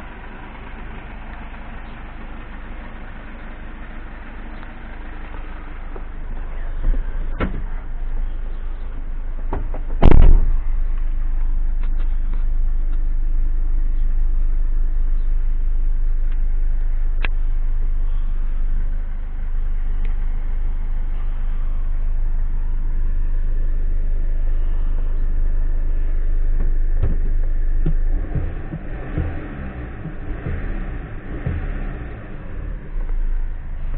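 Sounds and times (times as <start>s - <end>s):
diesel engine idling: 0.0s - 33.9s.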